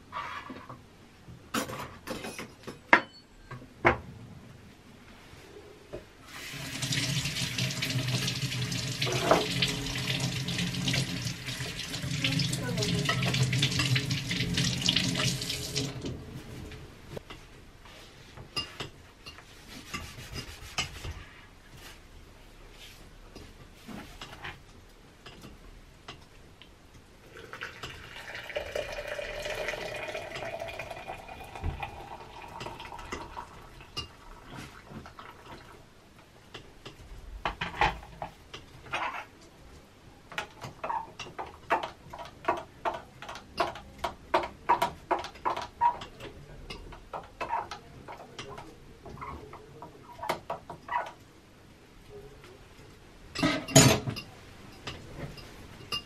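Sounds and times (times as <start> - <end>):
water pouring into glass press: 27.3 - 33.8.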